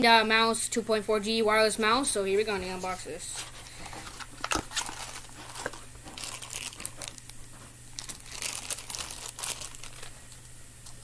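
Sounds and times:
plastic packaging crinkling: 2.7 - 10.5.

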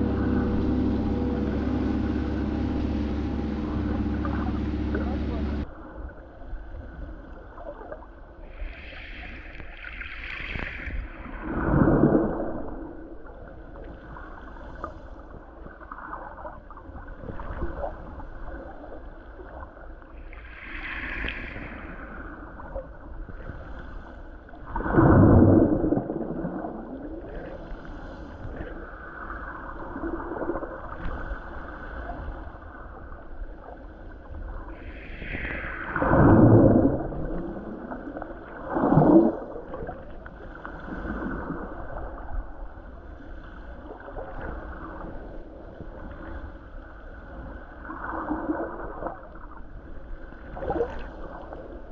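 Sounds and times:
gong ring bending in pitch: 0.0 - 5.6
watery gurgle: 0.0 - 5.8, 24.5 - 27.7, 32.5 - 42.9.

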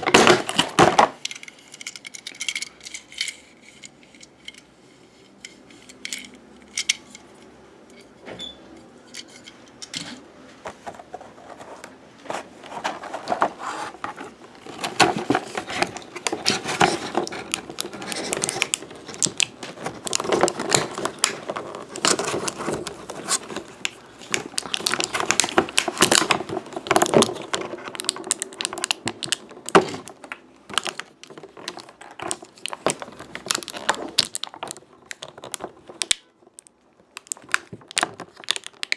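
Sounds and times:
plastic toy pieces clattering: 0.0 - 4.7, 5.5 - 7.2, 14.6 - 38.9.

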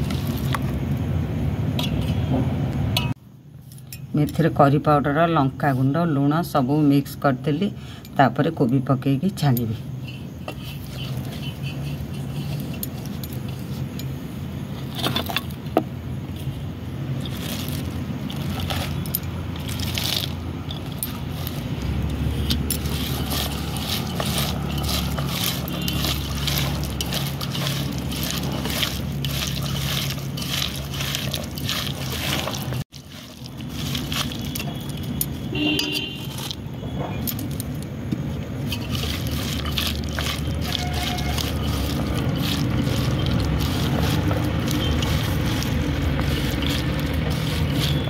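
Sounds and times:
hands squelching wet batter: 0.0 - 1.0, 10.5 - 14.0, 16.4 - 36.7, 37.3 - 48.0
fingers scraping steel bowl: 10.1 - 14.1, 17.2 - 36.6, 38.6 - 48.0.

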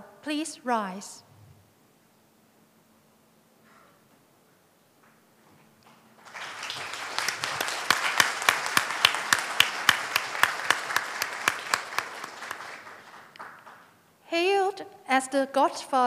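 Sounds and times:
nearby hands clapping sharply: 5.8 - 13.9
audience applauding: 6.2 - 14.0.

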